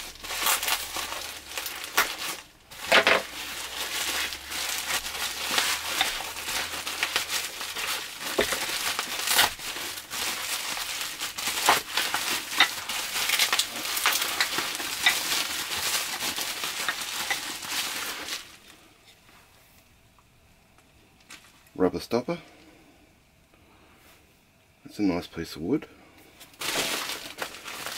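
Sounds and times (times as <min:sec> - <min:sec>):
bubble wrap crinkling: 0:00.0 - 0:18.9, 0:26.4 - 0:27.9.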